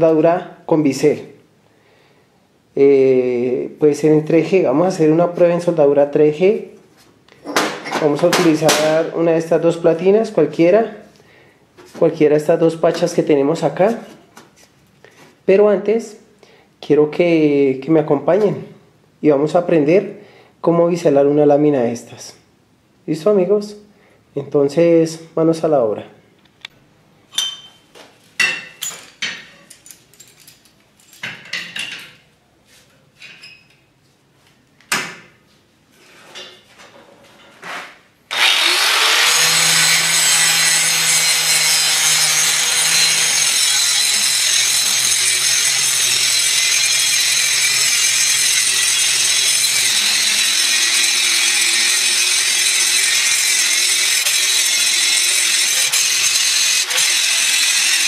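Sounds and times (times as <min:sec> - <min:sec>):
angle grinder grinding steel: 0:38.3 - 0:58.0.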